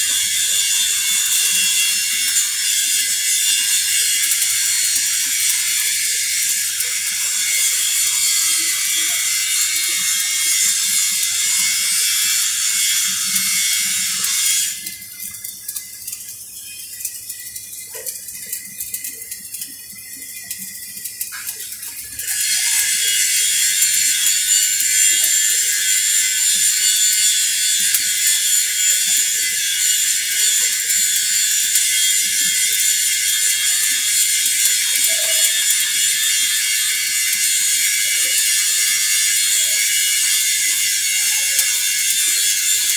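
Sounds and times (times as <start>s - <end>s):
welding arc crackling: 0.0s - 42.9s
faint hiss and ticks: 13.0s - 42.9s.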